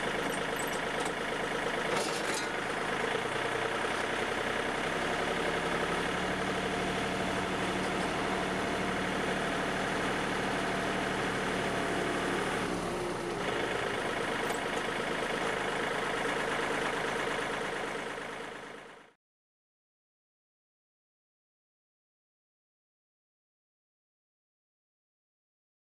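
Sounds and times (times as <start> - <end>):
rotary tiller spinning: 0.0 - 4.2, 13.3 - 17.6
tractor diesel engine running: 0.0 - 19.2.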